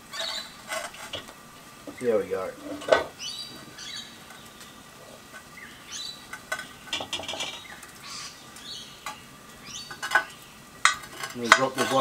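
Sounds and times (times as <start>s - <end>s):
birds chirping: 0.0s - 12.0s
metal hook scraping cast-iron lid: 10.9s - 12.0s.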